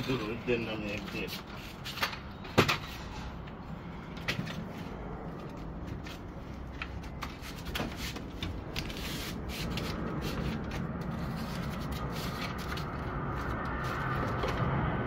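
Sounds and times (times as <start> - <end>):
steady low rumble: 2.2 - 15.0.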